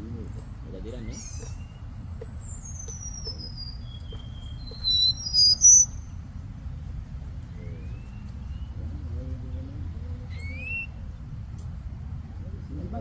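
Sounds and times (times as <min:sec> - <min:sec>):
steady low rumble: 0:00.0 - 0:13.0
bird singing high whistles: 0:00.9 - 0:06.2, 0:10.3 - 0:11.0.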